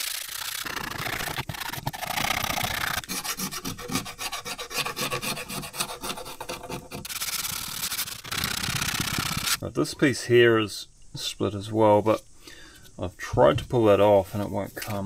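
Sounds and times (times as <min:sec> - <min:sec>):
blade scraper scraping wood: 0:00.0 - 0:09.6
sandpaper rubbing on wood: 0:00.0 - 0:09.6.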